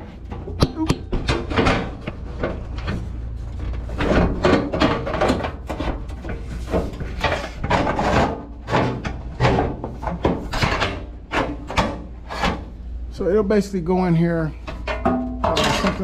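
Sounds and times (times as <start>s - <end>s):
metal panel rubbing and scraping: 0.0s - 12.8s.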